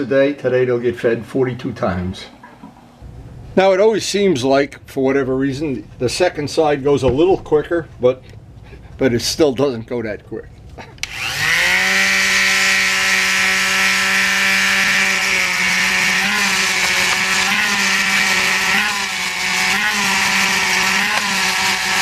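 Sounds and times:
orbital sander whining: 11.0 - 22.0.

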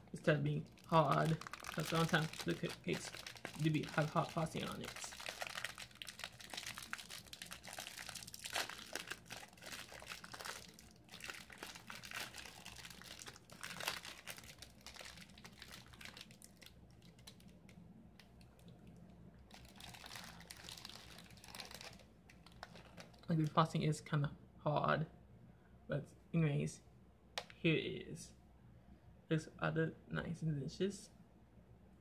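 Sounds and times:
snack wrapper crinkling: 0.6 - 18.7, 19.5 - 23.3.

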